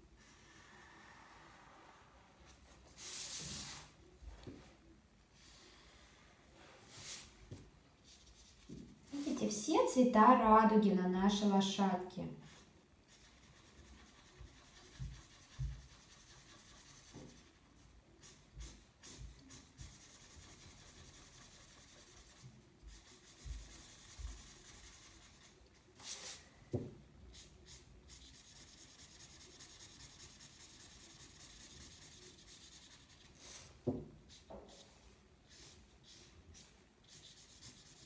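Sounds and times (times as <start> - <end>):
marker scratching on paper: 8.0 - 9.4, 12.4 - 26.4, 27.3 - 38.0.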